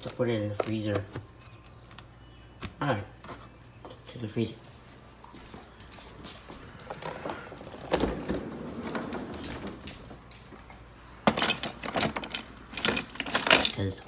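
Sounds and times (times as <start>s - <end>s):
frozen packages clattering: 6.1s - 14.0s
freezer drawer sliding open: 6.9s - 10.1s.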